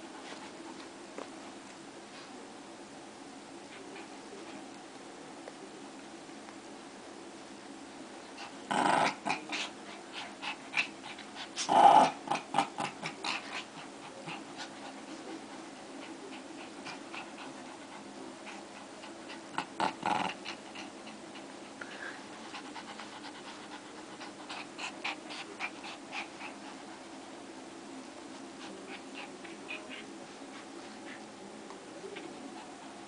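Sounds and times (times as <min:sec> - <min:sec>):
small dogs growling and snarling: 0:08.3 - 0:27.1, 0:28.2 - 0:31.4.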